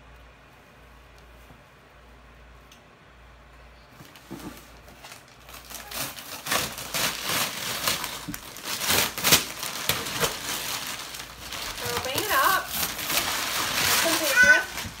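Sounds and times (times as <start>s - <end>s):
plastic and paper crinkling: 4.0s - 15.0s.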